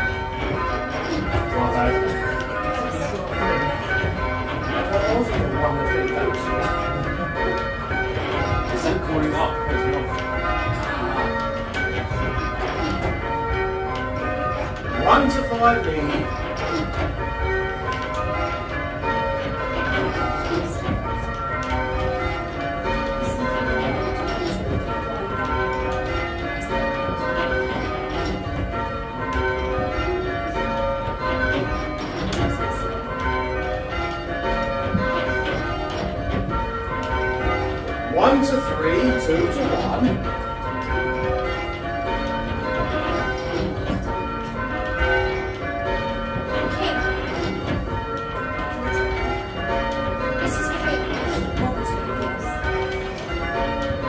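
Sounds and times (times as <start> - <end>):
church bells ringing: 0.0 - 54.0.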